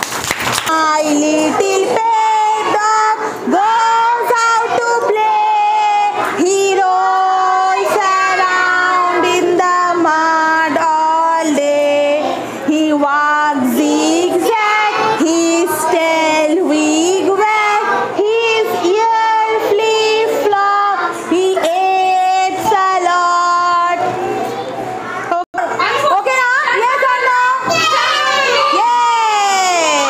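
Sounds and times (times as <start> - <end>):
woman singing: 0.7 - 24.0
children singing in unison: 0.7 - 24.7.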